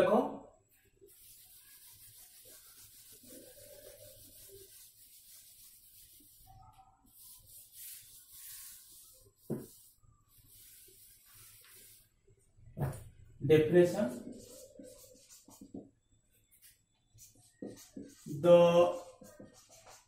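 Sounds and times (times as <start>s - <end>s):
duster rubbing whiteboard: 1.1s - 6.5s, 7.1s - 12.1s.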